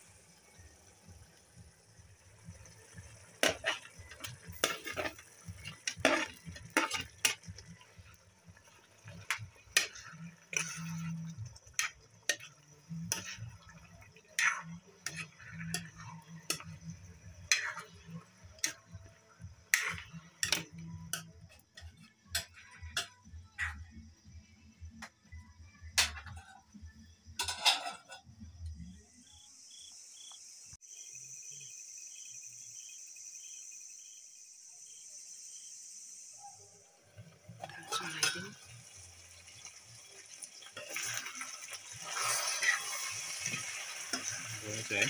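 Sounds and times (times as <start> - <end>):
faint sizzle: 0.0 - 45.0
spoon scraping steel pan: 3.4 - 7.8, 9.1 - 18.9, 19.7 - 23.9, 27.4 - 28.3.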